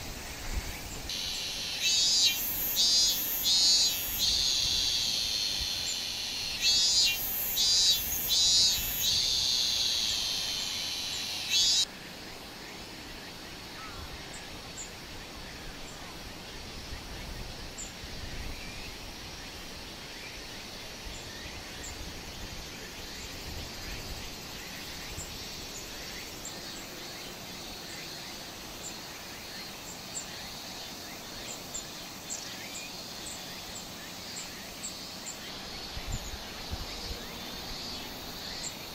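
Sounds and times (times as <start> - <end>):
loud insect buzz: 0.0 - 11.9.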